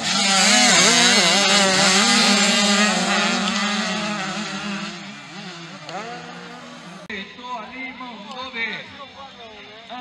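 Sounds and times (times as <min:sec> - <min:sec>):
motocross bike engines revving: 0:00.0 - 0:07.2.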